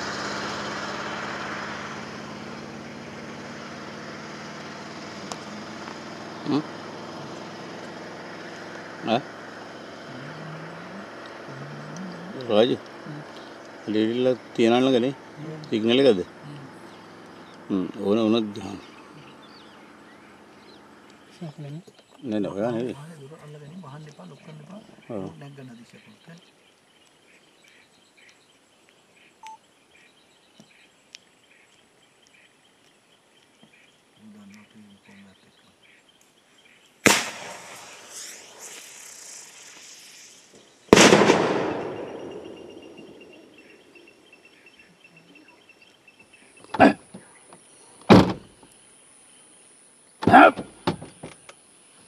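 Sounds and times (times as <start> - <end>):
firecracker fizzing: 37.0 - 42.7
firecracker bang: 37.0 - 42.9
sharp cracks: 37.0 - 43.0.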